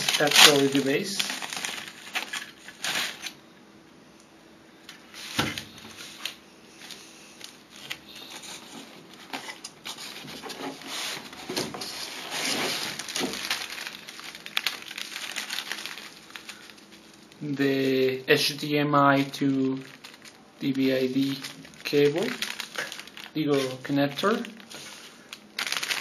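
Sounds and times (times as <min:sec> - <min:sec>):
plastic and cardboard rustling: 0:00.0 - 0:03.4, 0:04.9 - 0:17.4, 0:19.2 - 0:26.0.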